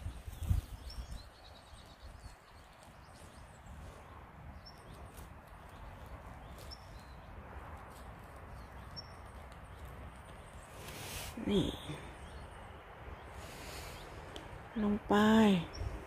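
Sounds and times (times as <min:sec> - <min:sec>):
wind rumble on microphone: 0:00.0 - 0:10.8, 0:14.0 - 0:16.0.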